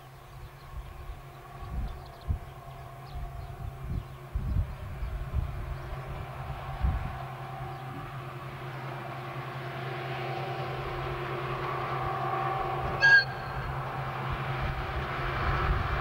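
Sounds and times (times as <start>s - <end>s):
diesel locomotive engine drone: 0.0s - 16.0s
short train horn toot: 12.0s - 13.8s.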